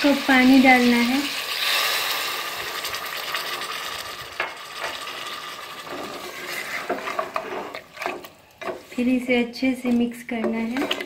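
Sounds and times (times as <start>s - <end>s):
food sizzling in a pot: 0.0s - 7.3s
spatula knocking and scraping pot: 5.8s - 9.2s, 10.3s - 11.0s.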